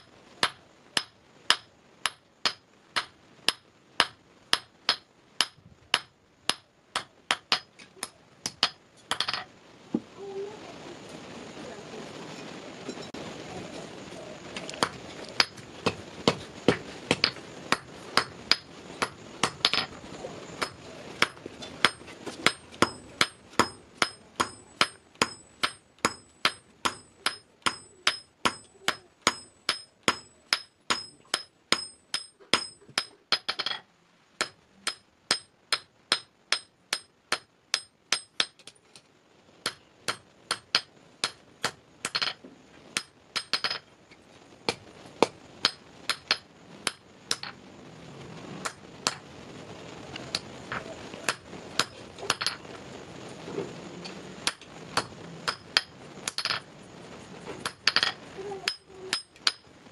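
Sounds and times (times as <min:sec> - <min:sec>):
hammer striking iron on anvil: 0:00.4 - 0:09.4, 0:20.6 - 0:33.8, 0:34.4 - 0:38.7, 0:43.0 - 0:43.8, 0:54.4 - 0:56.6, 0:58.7 - 0:59.6.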